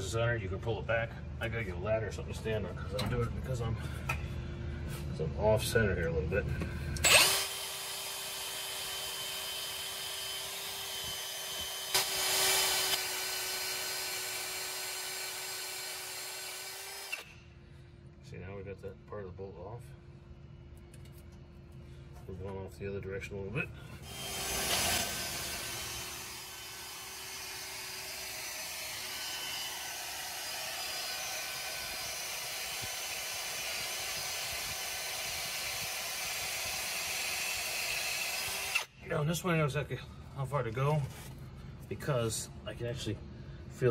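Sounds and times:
electric drill cutting metal: 7.0 - 17.4, 24.0 - 38.9.

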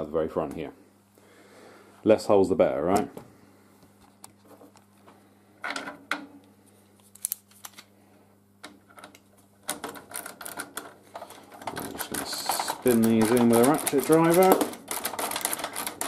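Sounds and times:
tools and bolts clicking: 8.9 - 16.0.

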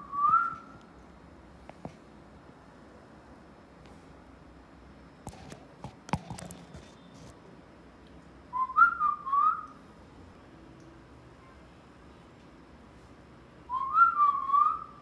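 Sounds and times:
sharp clicks and knocks: 5.3 - 7.0.

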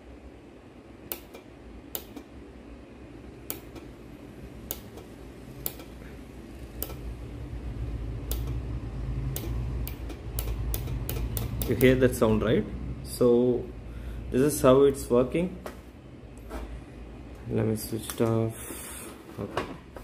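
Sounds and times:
low hum: 0.0 - 18.0
solenoid valve clicking: 1.1 - 2.3, 3.4 - 3.9, 4.7 - 6.0, 6.8 - 7.1, 8.2 - 8.6, 9.3 - 12.1.

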